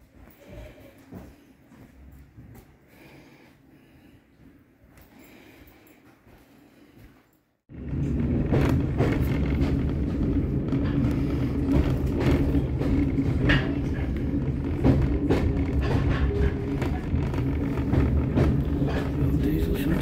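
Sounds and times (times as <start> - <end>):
railway carriage rumbling on track: 7.7 - 20.0
wheels knocking and clattering: 7.7 - 20.0.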